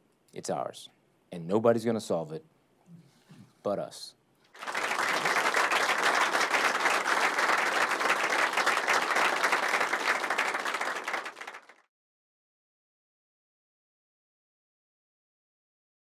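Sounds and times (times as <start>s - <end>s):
audience applauding: 4.6s - 11.9s.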